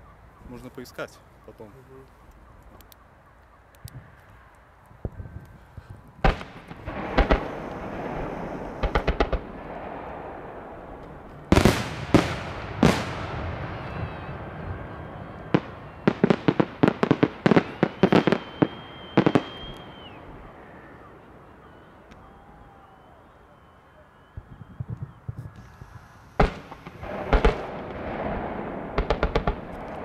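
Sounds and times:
fireworks booming: 6.2 - 23.0, 24.2 - 30.0.

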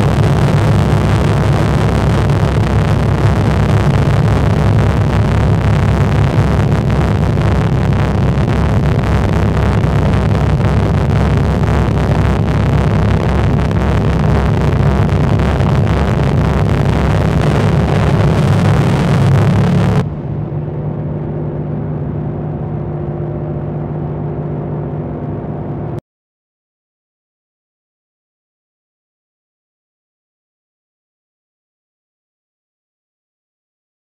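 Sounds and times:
loud rough crackling rumble: 0.0 - 23.0.

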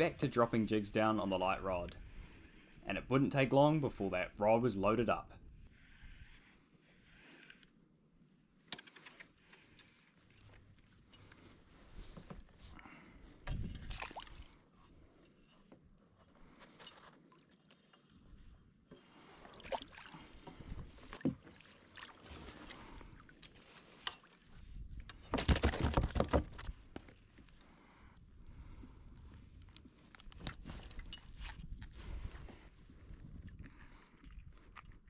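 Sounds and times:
water splashing: 13.7 - 14.5, 19.2 - 24.4
knocks against plastic hull: 25.3 - 26.6.

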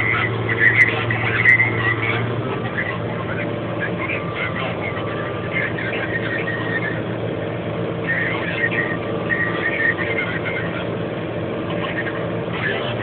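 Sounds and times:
tractor diesel engine: 0.0 - 13.0.

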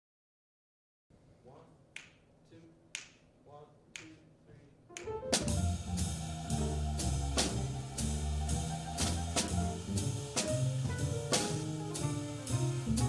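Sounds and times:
drum kit with cymbals: 5.0 - 13.0
walking upright bass: 5.0 - 13.0.

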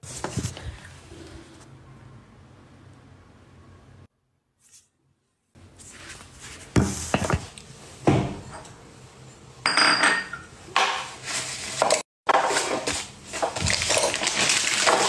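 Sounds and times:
dishes and utensils clinking: 9.6 - 11.1.

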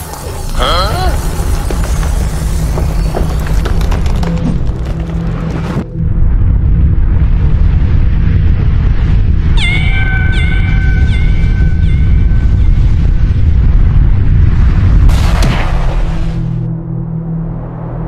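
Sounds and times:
deep crackling rumble: 0.0 - 18.0
cat meowing: 9.6 - 12.2.

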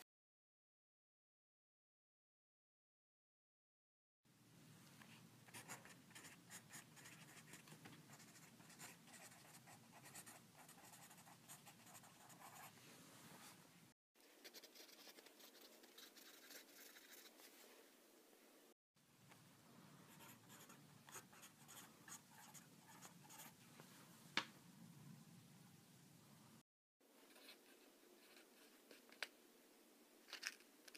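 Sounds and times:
pen scratching on paper: 5.5 - 12.7, 14.4 - 17.4, 20.1 - 23.6.

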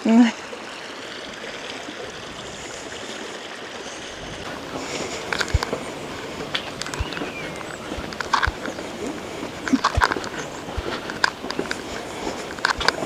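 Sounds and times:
river water flowing: 0.0 - 13.0
sharp clicks and knocks: 4.8 - 13.0.

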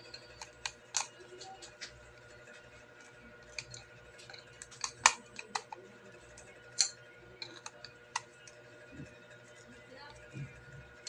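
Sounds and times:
screwdriver clicking and tapping: 3.6 - 5.8.

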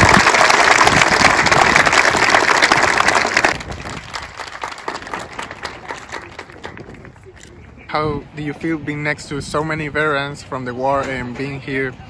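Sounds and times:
crowd applauding: 0.0 - 7.2.

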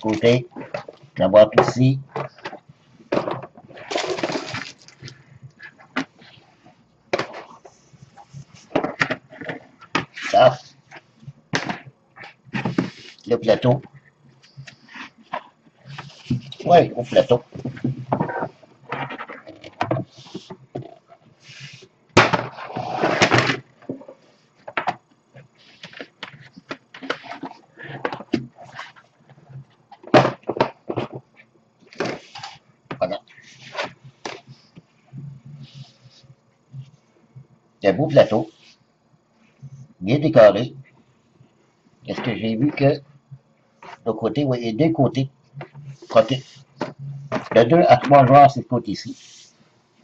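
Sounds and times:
plastic bag crinkling: 3.7 - 5.2.

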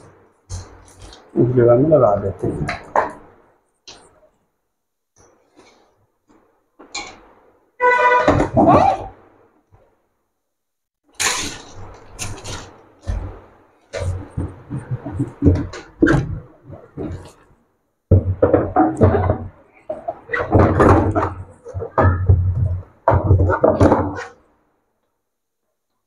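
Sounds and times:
plastic cabinet knocks and rattles: 12.2 - 17.4, 18.1 - 24.4.

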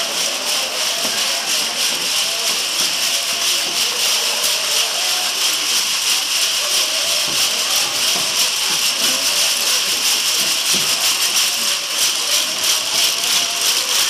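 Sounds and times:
crowd chattering: 0.0 - 14.0
small bells jingling: 0.0 - 14.0.

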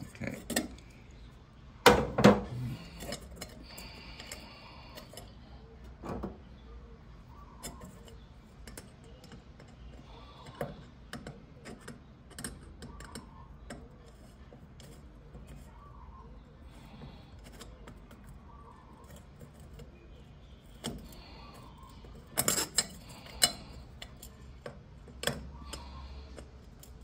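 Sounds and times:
parts clicking and knocking: 1.8 - 6.5, 7.6 - 15.7, 20.6 - 27.0.

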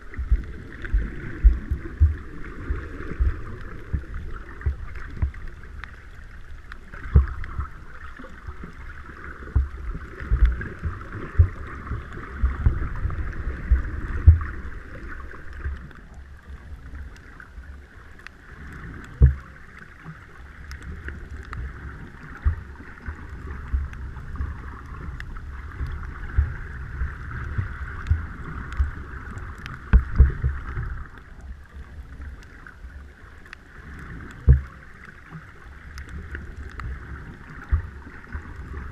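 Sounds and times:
low underwater thumps: 0.0 - 5.5, 7.0 - 7.8, 9.5 - 15.0, 19.2 - 19.4, 23.6 - 29.0, 29.7 - 31.1, 34.4 - 34.7
water moving against camera housing: 0.0 - 17.6, 19.0 - 38.9.

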